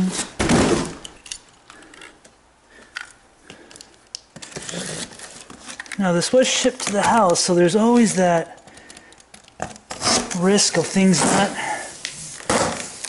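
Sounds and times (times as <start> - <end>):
utility knife on cardboard box: 9.9 - 13.0.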